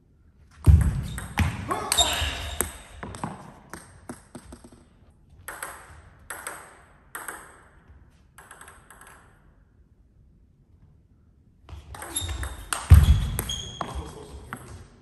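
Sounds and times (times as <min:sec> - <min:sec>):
table tennis ball bouncing: 0:00.6 - 0:09.5, 0:12.0 - 0:14.9.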